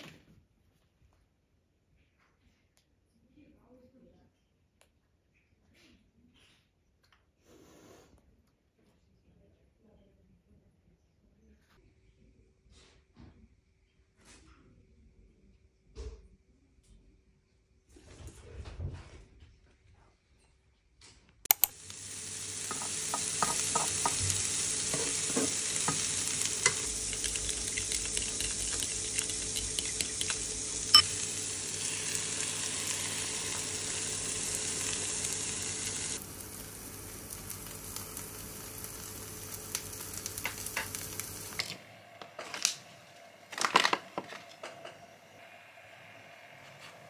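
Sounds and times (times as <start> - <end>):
food sizzling in a frying pan: 21.5 - 42.8
fork scraping a pan: 22.7 - 24.2, 24.9 - 26.0.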